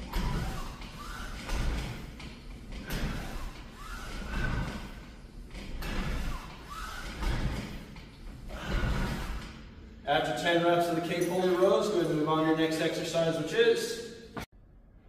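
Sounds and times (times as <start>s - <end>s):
flywheel and rope whirring: 0.0s - 9.6s.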